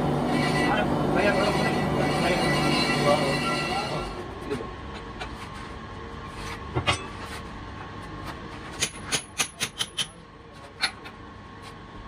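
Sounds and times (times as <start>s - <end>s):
steady machine hum: 0.0s - 9.3s.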